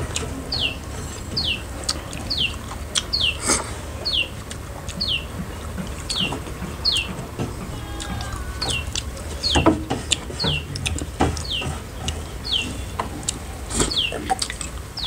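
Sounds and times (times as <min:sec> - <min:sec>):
bird calling high falling note: 0:07.7 - 0:09.0.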